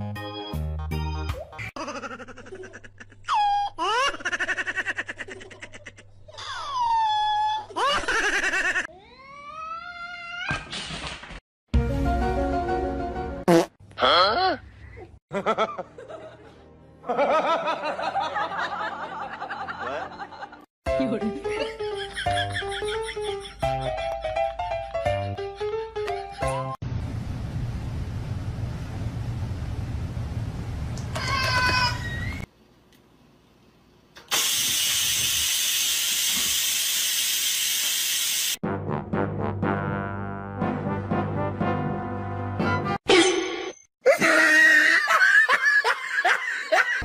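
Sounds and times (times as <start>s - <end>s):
background music: 0.0s - 1.7s, 11.8s - 13.5s, 15.3s - 26.8s, 38.6s - 43.0s
rice cooker venting steam hiss: 34.2s - 38.6s
music with brass: 38.6s - 43.0s.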